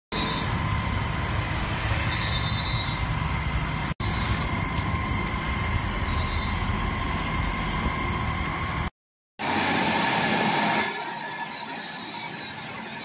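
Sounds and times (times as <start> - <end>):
fire engine engine and pump: 0.1 - 13.0.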